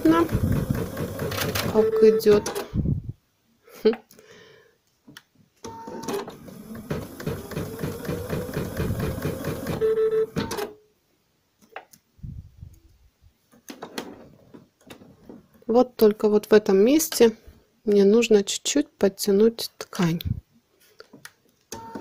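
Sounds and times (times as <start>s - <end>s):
embroidery machine stitching: 0.0s - 2.6s, 5.7s - 10.7s.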